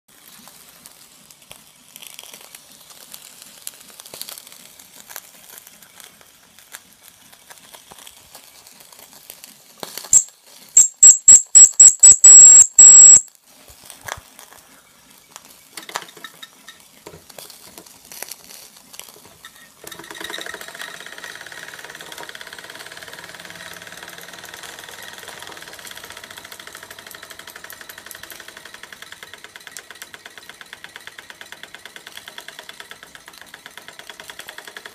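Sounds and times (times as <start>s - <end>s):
high-pitched whistle blasts: 10.2s - 13.3s
model steam engine ticking: 20.0s - 34.9s.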